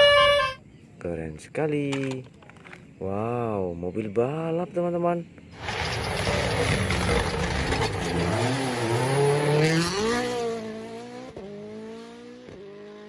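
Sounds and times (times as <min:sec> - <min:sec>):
rally car engine passing: 0:05.6 - 0:13.0.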